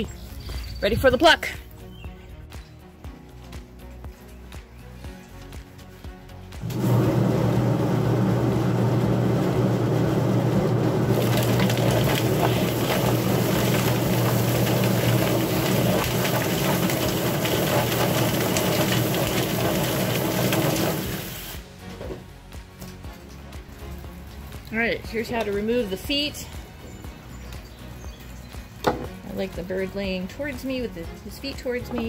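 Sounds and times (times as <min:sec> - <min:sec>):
electric motor humming: 0:06.6 - 0:21.6
hose spray hissing: 0:11.1 - 0:21.7.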